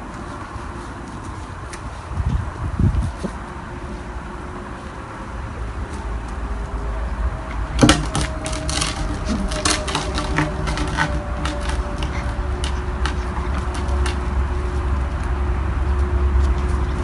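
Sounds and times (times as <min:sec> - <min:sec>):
puppies scratching wire mesh fence: 0:07.3 - 0:17.0.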